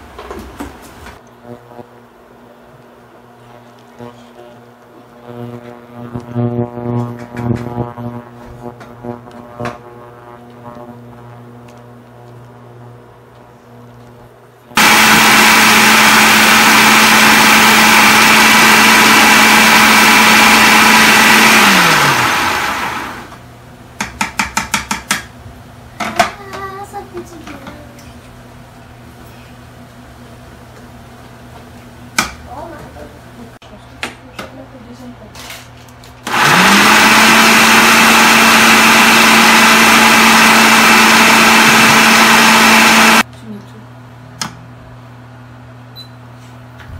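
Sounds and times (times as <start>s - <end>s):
food processor grinding biscuits: 14.8s - 23.4s, 36.3s - 43.2s.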